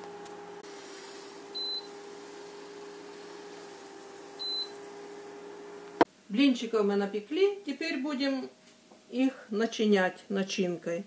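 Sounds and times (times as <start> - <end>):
electrical hum: 0.0 - 6.5
induction hob beeps: 1.6 - 1.9, 4.4 - 4.8.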